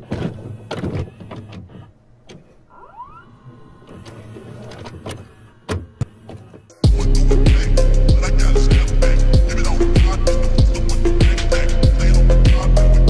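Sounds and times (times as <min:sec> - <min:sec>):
cassette mechanism clicks and clunks: 0:00.0 - 0:02.7.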